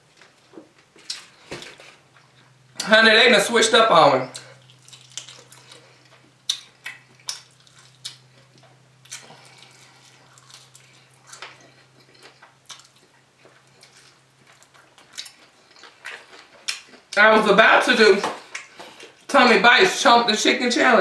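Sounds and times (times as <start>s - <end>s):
low electrical hum: 0.0s - 21.0s
lip smacks: 4.3s - 14.0s, 18.4s - 19.0s
wet chewing: 4.3s - 17.2s.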